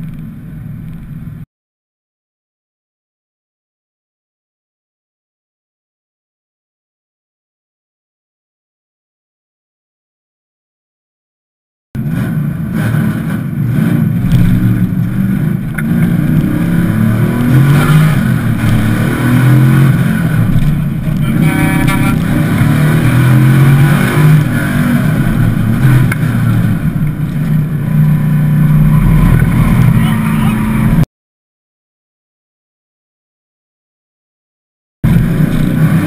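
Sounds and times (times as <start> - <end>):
car engine revving under load: 12.0 - 31.1, 35.0 - 36.0.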